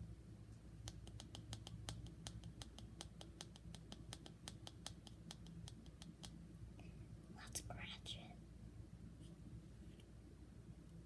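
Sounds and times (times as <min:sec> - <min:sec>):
light sharp hand tapping: 0:00.8 - 0:06.4.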